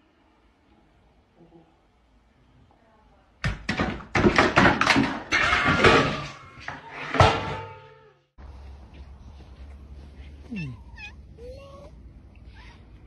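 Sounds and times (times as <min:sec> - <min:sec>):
thumps and knocks: 0:03.4 - 0:07.7.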